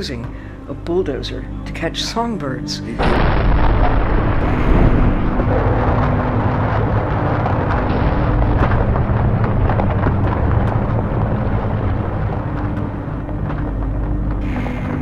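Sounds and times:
crackling and scraping: 0:03.0 - 0:15.0
trawl gear rumbling on seabed: 0:03.0 - 0:15.0.

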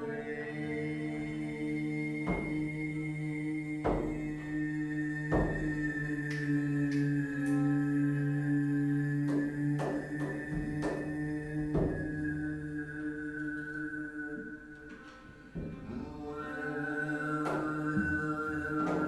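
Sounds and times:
low chant-like vocal drone: 0:00.0 - 0:19.0
sharp percussive knocks: 0:02.2 - 0:02.7, 0:03.8 - 0:04.4, 0:05.2 - 0:07.6, 0:09.2 - 0:12.3, 0:17.4 - 0:19.0.

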